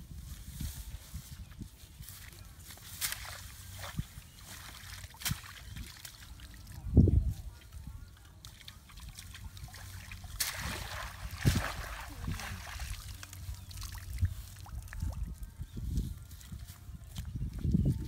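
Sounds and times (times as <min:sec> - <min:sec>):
water sloshing and trickling: 0:01.6 - 0:17.7
splashing and dripping water: 0:02.9 - 0:06.8, 0:07.6 - 0:15.4.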